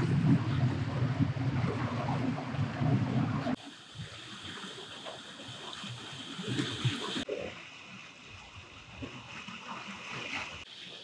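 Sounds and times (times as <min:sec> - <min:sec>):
wind buffeting microphone: 0:00.0 - 0:03.6
water lapping and trickling: 0:00.0 - 0:11.0.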